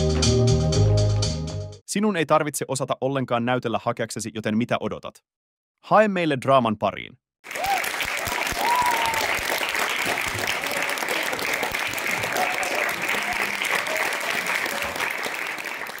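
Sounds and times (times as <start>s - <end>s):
audience applauding: 7.5s - 16.0s.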